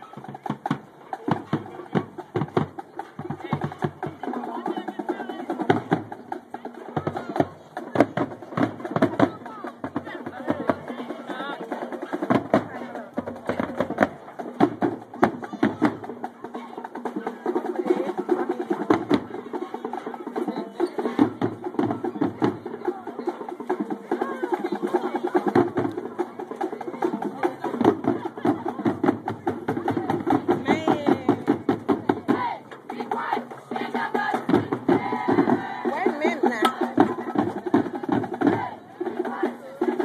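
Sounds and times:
drums striking busy rhythm: 0.0 - 40.0
marching band playing: 0.0 - 40.0
voices: 0.0 - 40.0.

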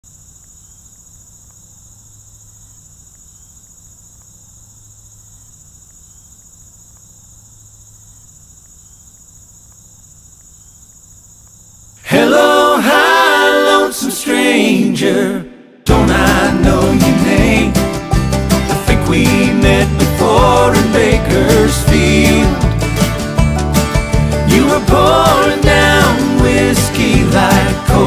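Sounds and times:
insects trilling: 0.0 - 12.1
acoustic country band: 15.9 - 28.0.

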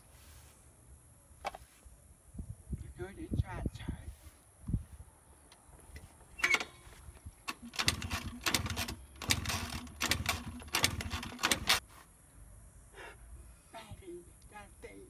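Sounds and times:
scooter engine being kick-started: 7.4 - 11.8.

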